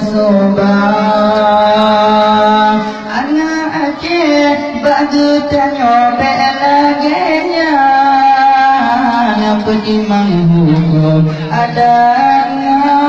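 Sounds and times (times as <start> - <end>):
man singing a chant: 0.0 - 13.0.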